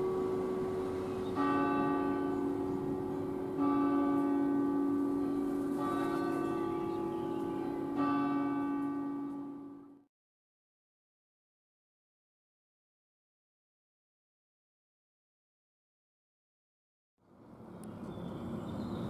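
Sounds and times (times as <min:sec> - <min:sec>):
bell tolling: 0:00.0 - 0:09.9.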